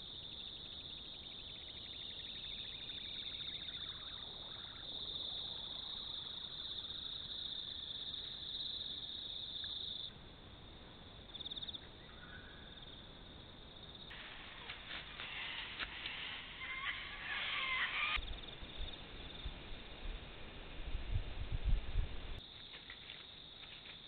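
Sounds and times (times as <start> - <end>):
crickets trilling: 0.0 - 10.1, 11.1 - 20.0.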